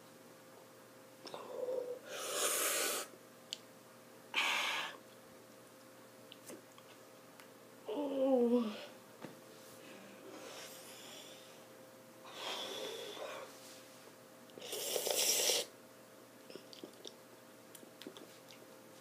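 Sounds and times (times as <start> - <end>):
person blowing out breath: 2.0 - 3.1, 14.6 - 15.7.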